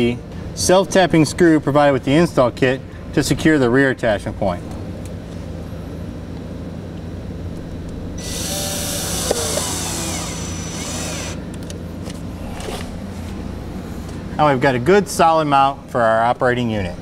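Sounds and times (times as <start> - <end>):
steady low hum: 0.0 - 17.0
power drill driving a screw: 8.2 - 11.4.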